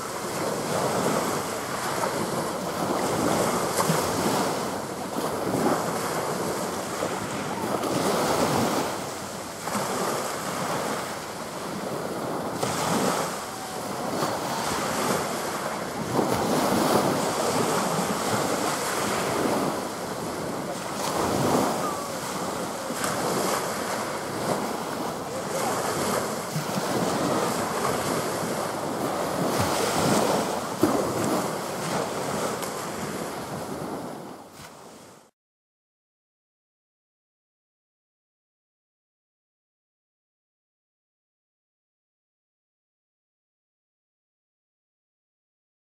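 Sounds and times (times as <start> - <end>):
wind buffeting microphone: 0.0 - 35.1
small waves washing on beach: 0.0 - 35.3.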